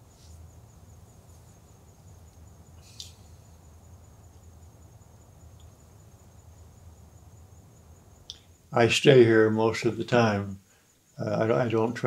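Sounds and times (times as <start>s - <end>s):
faint high whine: 0.0s - 12.0s
faint tick: 8.2s - 8.5s.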